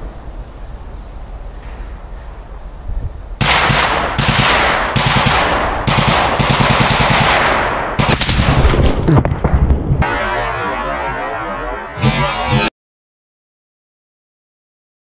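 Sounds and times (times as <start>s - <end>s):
automatic gunfire bursts: 3.4s - 8.6s.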